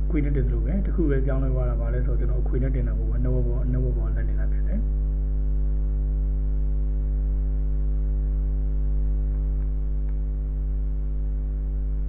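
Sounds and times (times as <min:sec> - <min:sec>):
electrical mains hum: 0:00.0 - 0:12.0
faint clicks: 0:09.3 - 0:10.4.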